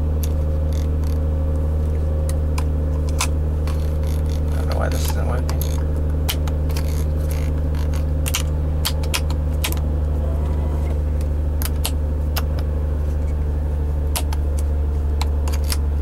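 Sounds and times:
car engine idling: 6.1 - 15.1.

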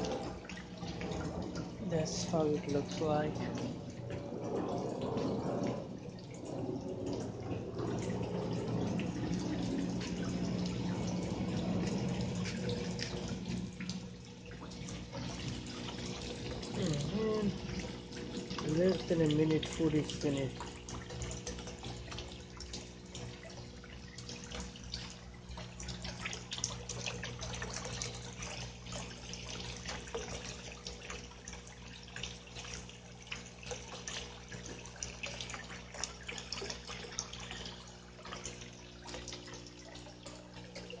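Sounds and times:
steady low hum: 0.0 - 29.9
water trickling and dripping: 0.0 - 41.0.

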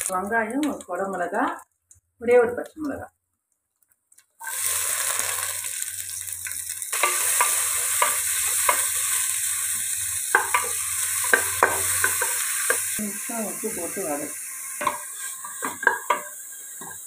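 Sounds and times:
vegetables sizzling in hot ghee: 0.0 - 3.1, 4.1 - 17.0
spatula knocking and scraping pan: 7.0 - 9.1, 10.3 - 12.9, 14.8 - 17.0.

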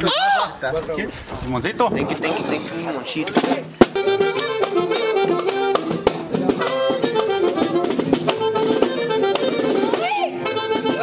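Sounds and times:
steady drum beat: 1.8 - 11.0
accordion melody: 3.8 - 11.0.

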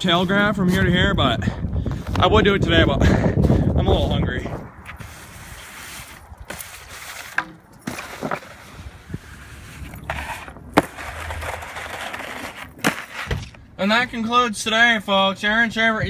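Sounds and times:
board scraping over snow: 4.9 - 13.6.

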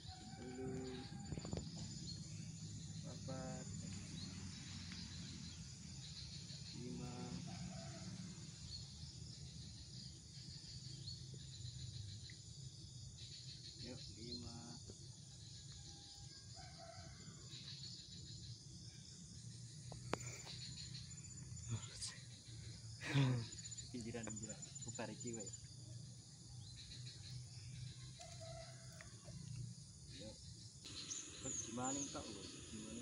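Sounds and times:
distant pitched cries: 0.0 - 9.0, 20.2 - 25.6, 30.1 - 33.0
insects chirring: 0.0 - 33.0.

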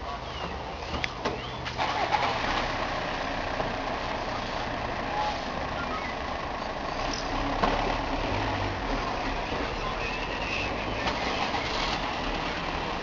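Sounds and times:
vehicle traffic: 0.0 - 13.0.

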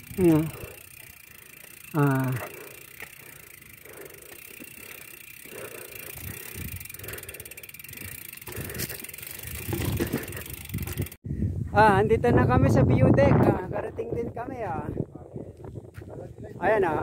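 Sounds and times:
bike rattling and rustling: 0.0 - 11.2.

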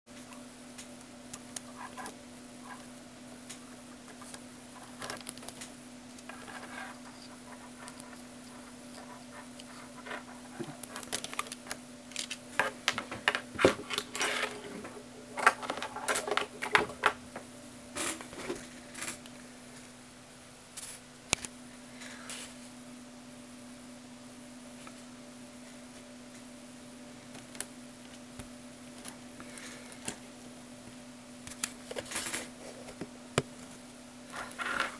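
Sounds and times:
steady low hum: 0.1 - 34.9
plastic parts clicking and rustling: 9.6 - 17.2.

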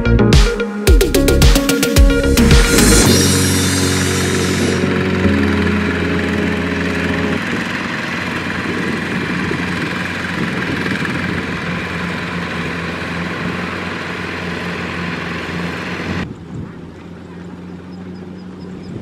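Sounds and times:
background music: 0.0 - 7.8
diesel tractor engine running: 0.9 - 19.0.

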